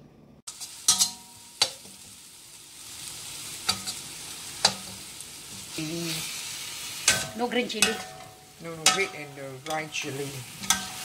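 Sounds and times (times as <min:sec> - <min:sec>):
paste sizzling in a wok: 0:00.5 - 0:11.0
metal spoon clinking on wok: 0:00.9 - 0:01.8, 0:07.1 - 0:10.0, 0:10.6 - 0:11.0.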